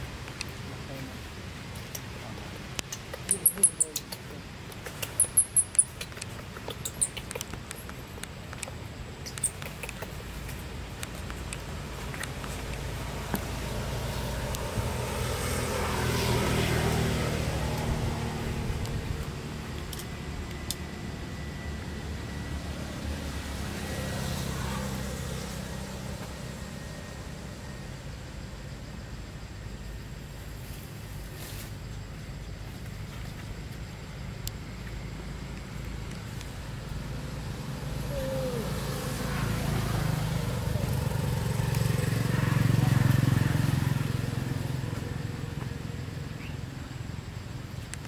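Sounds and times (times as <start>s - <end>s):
low engine rumble: 0.0s - 48.0s
infant monkey squeaking: 2.9s - 4.2s, 5.0s - 7.4s.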